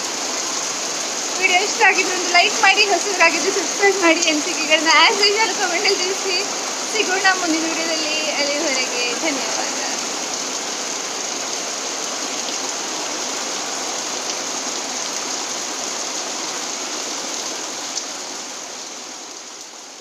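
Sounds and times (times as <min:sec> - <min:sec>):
heavy rain pouring: 0:00.0 - 0:20.0.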